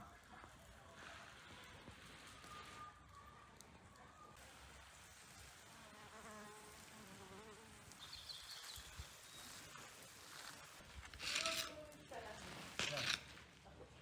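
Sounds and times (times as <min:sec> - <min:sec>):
flying insect buzzing: 0:05.6 - 0:09.0.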